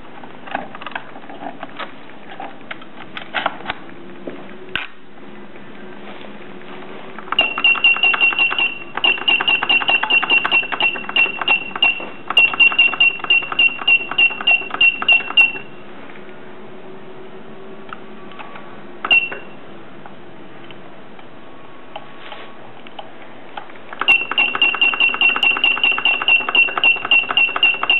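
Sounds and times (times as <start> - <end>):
tape dispenser beep and click: 7.3 - 15.8, 19.0 - 19.6, 24.0 - 27.9.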